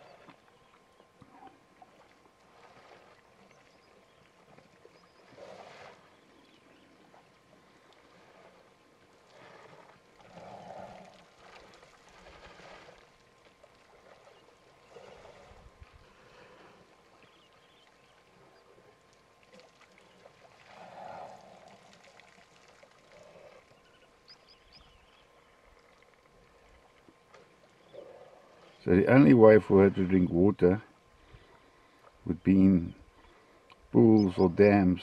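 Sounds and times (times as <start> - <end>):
water sloshing and pouring: 7.8 - 16.7, 17.9 - 23.8.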